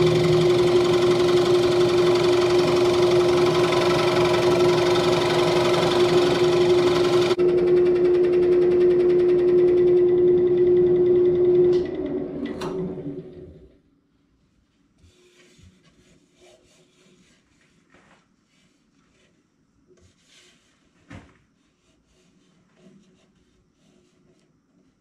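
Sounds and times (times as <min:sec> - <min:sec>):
wood lathe motor hum: 0:00.0 - 0:13.7
turning tool scraping wood: 0:15.0 - 0:21.0, 0:21.6 - 0:25.0.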